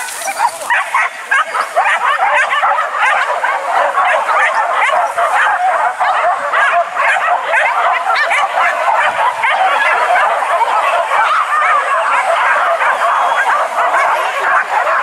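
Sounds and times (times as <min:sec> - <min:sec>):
dogs yelping and baying: 0:00.0 - 0:15.0.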